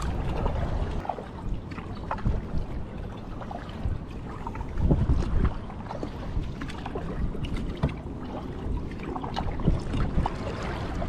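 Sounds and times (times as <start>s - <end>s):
low rumble: 0.0s - 5.6s
kayak paddle splashing: 0.0s - 11.0s.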